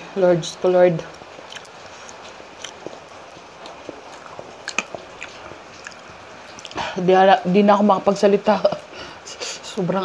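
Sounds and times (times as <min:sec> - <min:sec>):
mouth chewing with wet clicks: 0:01.0 - 0:07.0.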